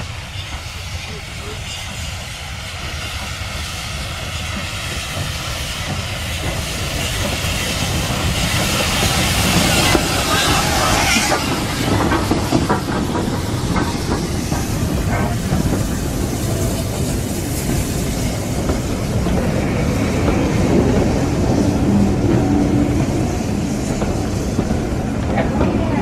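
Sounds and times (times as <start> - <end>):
steam hissing: 0.0 - 26.0
train wheels rumbling on track: 0.0 - 26.0
wheels clacking over rail joints: 5.2 - 26.0.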